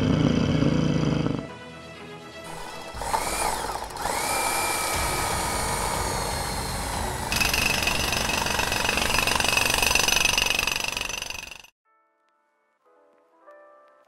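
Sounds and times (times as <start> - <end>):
rattling toy drill: 0.0 - 1.4, 2.5 - 11.7.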